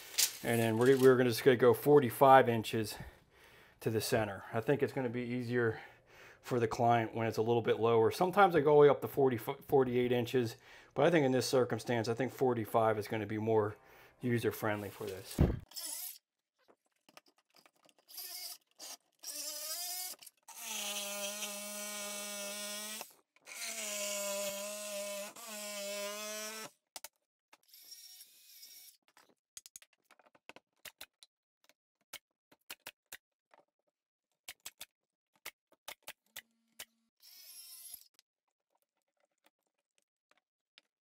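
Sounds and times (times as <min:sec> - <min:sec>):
power saw cutting wood: 0:19.3 - 0:26.7.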